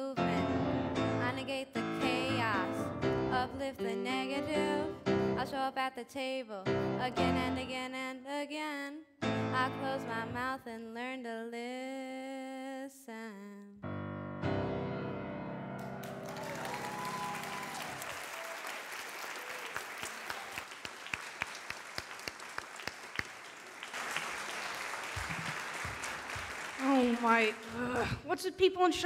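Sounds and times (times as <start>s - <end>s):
grand piano: 0.0s - 5.6s, 6.7s - 7.8s, 9.2s - 10.6s, 13.8s - 18.2s
woman singing: 0.0s - 13.8s
audience applauding: 15.8s - 28.2s.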